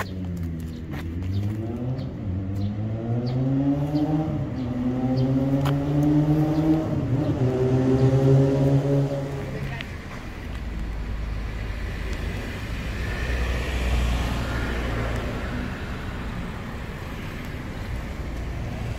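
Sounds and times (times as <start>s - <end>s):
vehicle engine revving: 0.0s - 9.8s.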